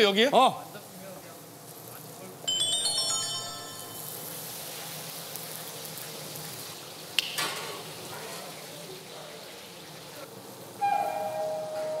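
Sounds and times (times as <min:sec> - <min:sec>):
onion and chilies sizzling in oil: 0:03.8 - 0:10.8.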